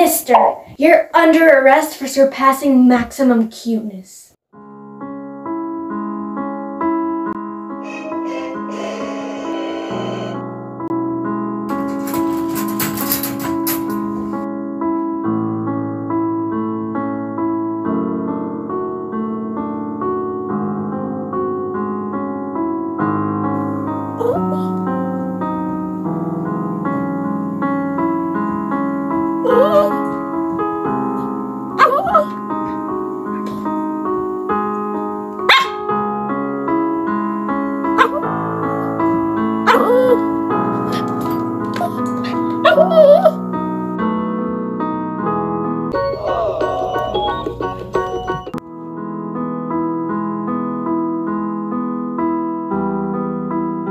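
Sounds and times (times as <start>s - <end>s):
piano music: 4.6s - 53.9s
small dog barking: 35.5s - 35.9s, 38.0s - 38.3s, 39.7s - 40.2s, 41.8s - 43.4s.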